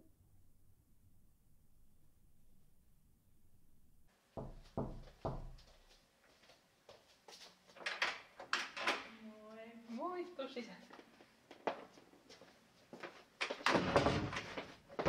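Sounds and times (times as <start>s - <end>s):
knocking on a door: 4.4s - 5.6s.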